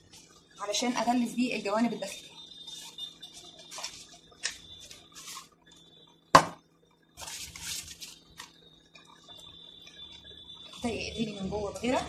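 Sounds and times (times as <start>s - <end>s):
paper and cardboard rustling: 2.7s - 5.5s, 7.2s - 8.6s
sharp knock on stone: 6.4s - 6.6s.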